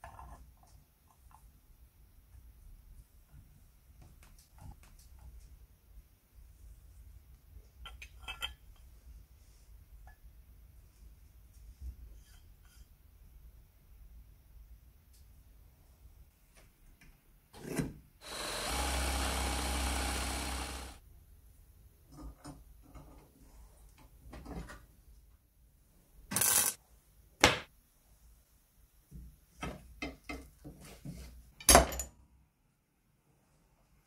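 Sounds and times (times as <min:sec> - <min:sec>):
steady mechanical noise: 0:18.2 - 0:21.0.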